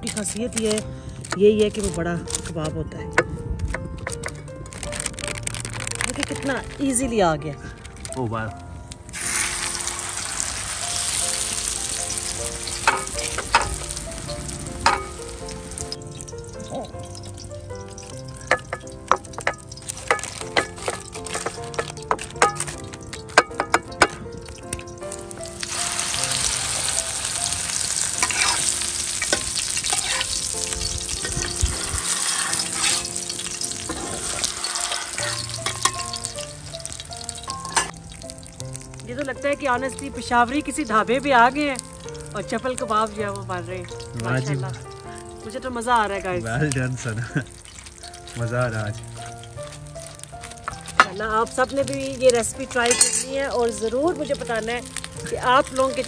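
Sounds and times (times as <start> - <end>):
meat sizzling in fat: 0.0 - 56.0
metal spatula clicking on pan: 12.8 - 13.8, 14.8 - 16.0, 18.1 - 24.9, 28.2 - 31.5, 52.7 - 53.9
metal spatula scraping pan: 12.8 - 13.8, 14.8 - 15.2, 28.2 - 30.5, 31.2 - 33.2, 33.8 - 36.2, 52.8 - 53.4.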